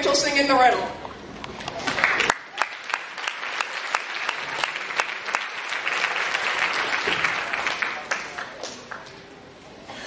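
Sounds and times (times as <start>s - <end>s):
audience applauding: 1.6s - 9.2s.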